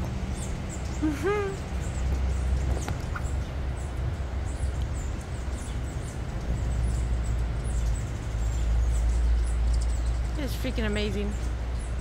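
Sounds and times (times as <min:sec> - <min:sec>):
hummingbirds chirping: 0:00.0 - 0:12.0
person humming: 0:01.0 - 0:01.6.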